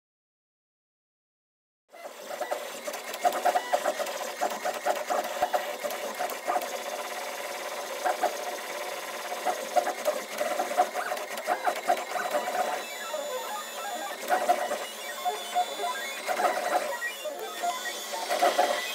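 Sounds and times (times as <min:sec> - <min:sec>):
stepper motors whirring and chirping: 0:01.9 - 0:18.9.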